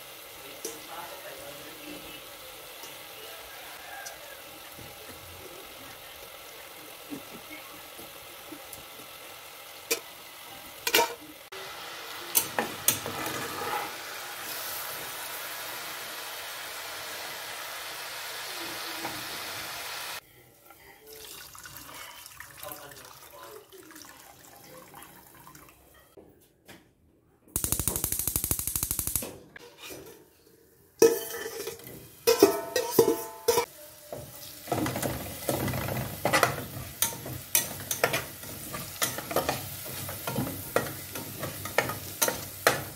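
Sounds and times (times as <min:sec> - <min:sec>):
hot oil sizzling in a pot: 0:00.0 - 0:20.2, 0:27.6 - 0:29.3, 0:31.0 - 0:42.9
spatula scraping a pot: 0:13.0 - 0:14.0.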